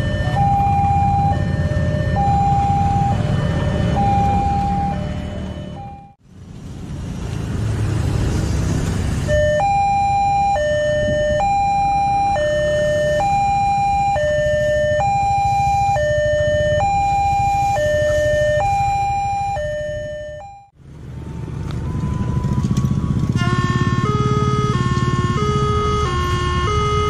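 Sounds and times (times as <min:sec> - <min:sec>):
two-tone level crossing alarm: 0:00.0 - 0:06.2, 0:09.3 - 0:20.8
motorcycles passing: 0:00.0 - 0:19.8, 0:20.7 - 0:27.0.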